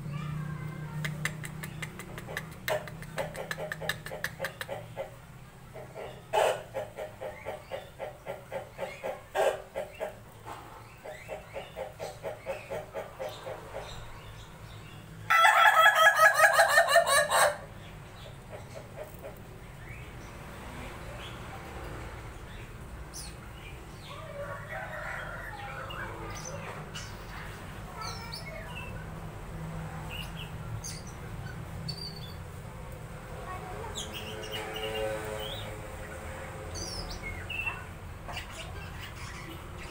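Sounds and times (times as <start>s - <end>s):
birds chirping: 0.0s - 39.9s
rooster laughing crow: 15.3s - 17.6s.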